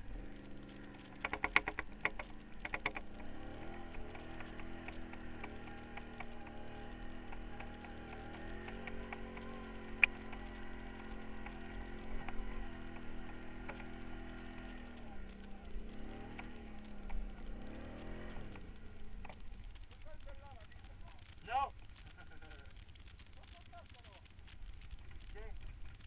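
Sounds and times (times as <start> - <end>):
quad bike engine revving: 0.0 - 20.0
knocks and rattles from bumpy ride: 0.4 - 20.6
sharp click: 1.1 - 3.1.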